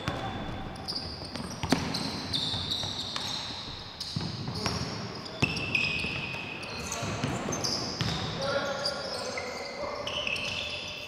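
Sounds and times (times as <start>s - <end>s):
sneaker squeaks on floor: 0.0s - 11.0s
basketball bouncing: 1.3s - 6.2s, 7.0s - 8.3s.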